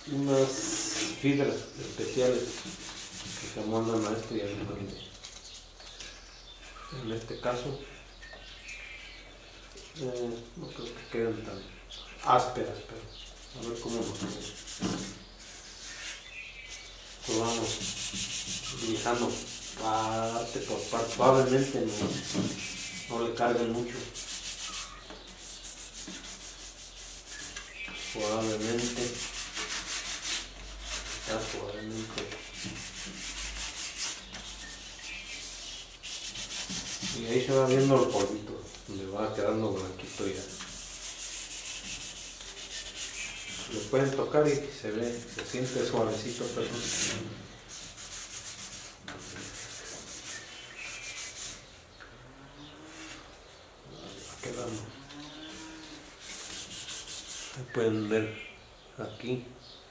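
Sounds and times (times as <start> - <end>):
sandpaper rubbing on wood: 0.3 - 4.4, 13.5 - 38.9, 39.5 - 51.7, 54.0 - 54.9, 56.1 - 57.7.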